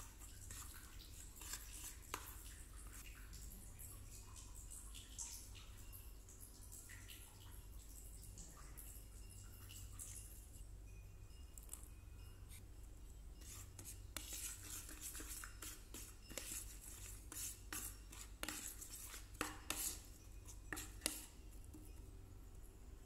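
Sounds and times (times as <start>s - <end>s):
metal spoon scraping plastic bowl: 0.0s - 3.0s, 13.4s - 22.0s
low steady hum: 0.0s - 23.0s.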